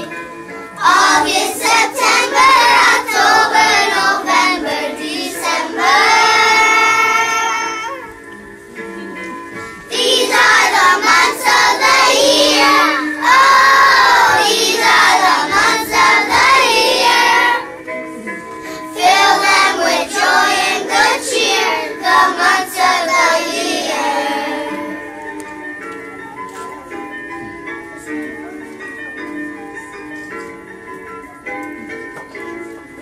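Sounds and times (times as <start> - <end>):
young children singing: 0.0 - 0.2, 0.8 - 8.0, 9.9 - 17.8, 18.7 - 25.2
musical backing track: 0.0 - 33.0.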